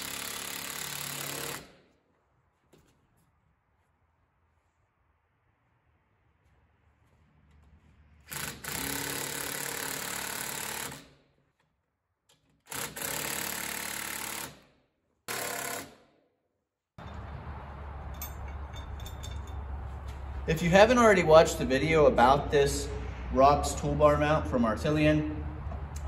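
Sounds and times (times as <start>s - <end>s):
impact driver hammering: 0.0s - 1.8s, 8.3s - 11.1s, 12.6s - 14.6s, 15.3s - 16.1s.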